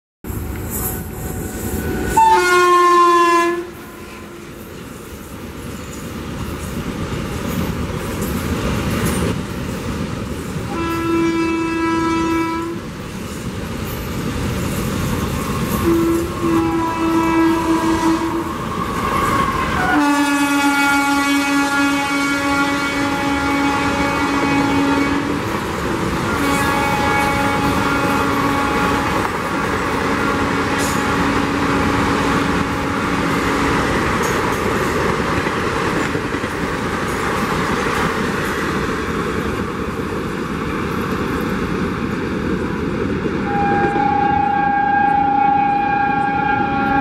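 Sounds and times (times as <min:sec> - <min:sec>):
rumble of approaching train: 0:00.2 - 0:47.0
train horn blasts: 0:00.8 - 0:04.7, 0:10.7 - 0:12.8, 0:15.5 - 0:33.6, 0:43.4 - 0:47.0.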